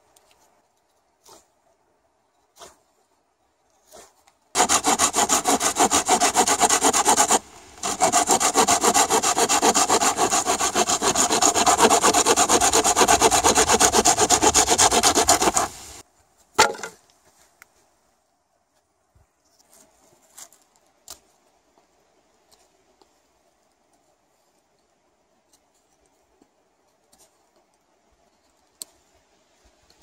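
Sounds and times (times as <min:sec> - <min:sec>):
hand saw cutting wood: 0:04.6 - 0:16.0.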